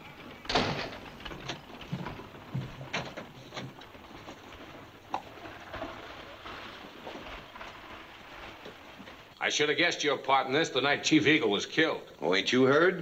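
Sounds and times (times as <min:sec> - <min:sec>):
knocks and thumps on wooden rail: 0:00.2 - 0:09.3.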